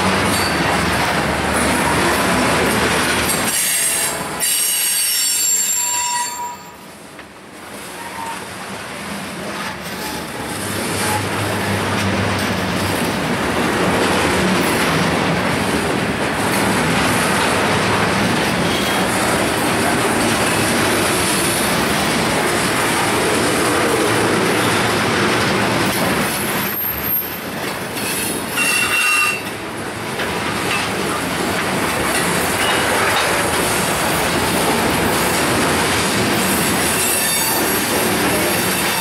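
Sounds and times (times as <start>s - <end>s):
train wheels on rails: 0.0s - 39.0s
high wheel squeal: 3.5s - 6.9s, 26.4s - 29.5s, 36.9s - 39.0s.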